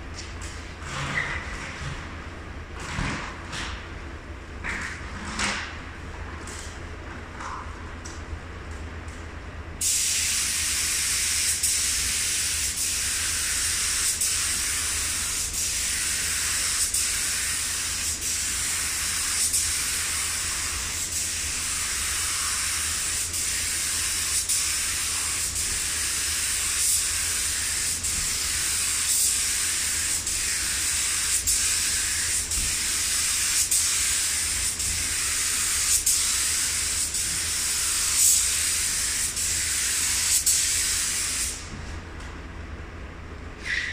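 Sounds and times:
paint spray gun hissing: 9.8 - 41.6.

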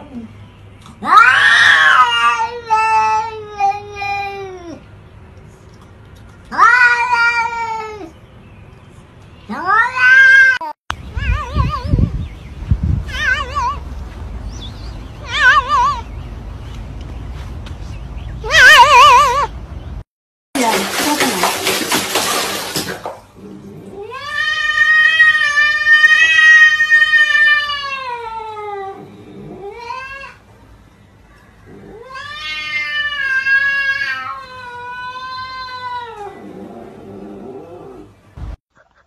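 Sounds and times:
cats yowling: 1.0 - 4.8, 6.5 - 8.2, 9.5 - 12.1, 13.1 - 13.8, 15.2 - 16.1, 18.4 - 19.5, 23.7 - 30.4, 31.7 - 38.1.

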